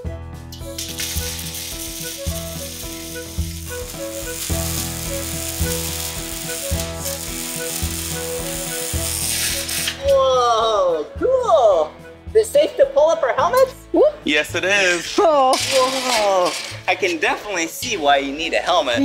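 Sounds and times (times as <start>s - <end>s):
background music: 0.0s - 19.0s
arc welding hiss: 0.7s - 10.0s.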